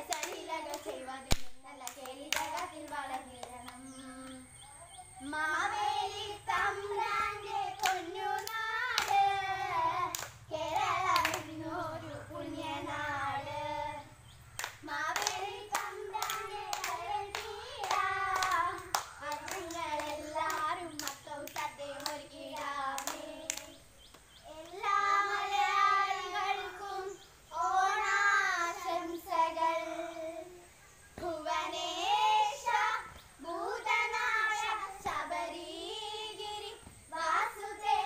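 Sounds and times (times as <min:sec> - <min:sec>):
sharp hand claps: 0:00.0 - 0:04.4, 0:07.8 - 0:09.3, 0:10.1 - 0:11.5, 0:14.6 - 0:24.3
girl singing: 0:00.0 - 0:14.2, 0:14.8 - 0:38.0.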